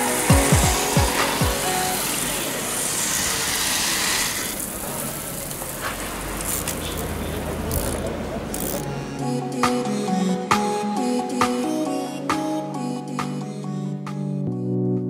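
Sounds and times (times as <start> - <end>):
water spray hissing: 0.0 - 7.4
background voices: 0.0 - 14.4.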